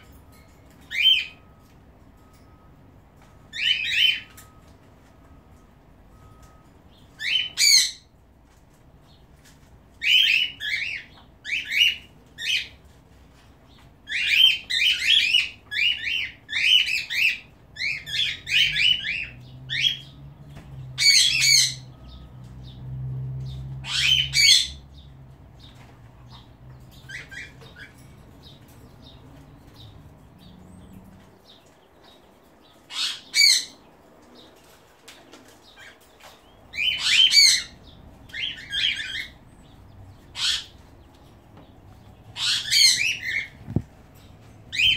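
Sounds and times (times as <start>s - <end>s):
parrots chirping shrilly: 7.2s - 8.1s, 14.1s - 20.2s, 21.0s - 21.9s, 23.8s - 24.8s, 32.9s - 33.8s, 36.7s - 39.4s, 40.3s - 40.8s, 42.3s - 43.6s.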